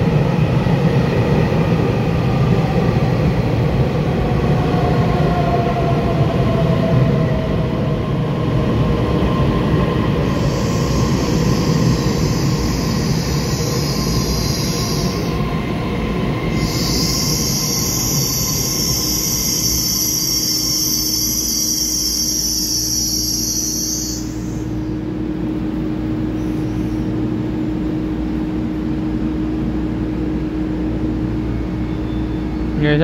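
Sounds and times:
rail rumble: 0:00.0 - 0:33.0
train wheels squealing: 0:10.1 - 0:25.0, 0:26.3 - 0:27.2, 0:31.6 - 0:33.0.

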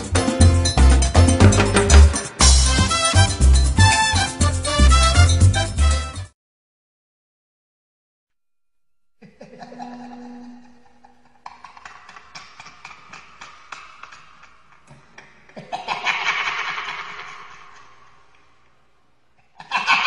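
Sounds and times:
sharp snickering pulses: 0:15.2 - 0:18.1.

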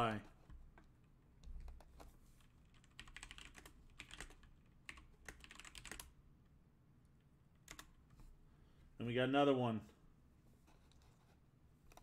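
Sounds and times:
faint keyboard typing: 0:00.0 - 0:06.2, 0:07.2 - 0:08.3, 0:10.6 - 0:12.0.

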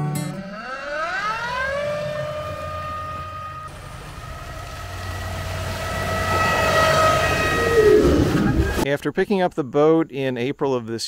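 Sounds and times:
electric outboard motor whine: 0:00.0 - 0:08.8
water rushing along hull: 0:00.9 - 0:08.8.

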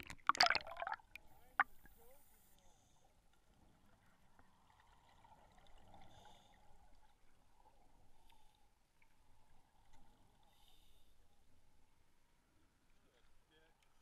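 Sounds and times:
scuba regulator bubbles: 0:00.0 - 0:01.7
muffled underwater hiss: 0:05.9 - 0:07.0, 0:10.1 - 0:11.6.

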